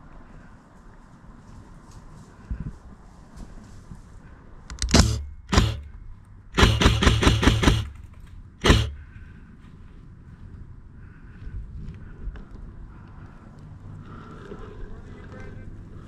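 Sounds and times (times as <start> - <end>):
airsoft gun shots: 4.7 - 5.9, 6.5 - 9.1.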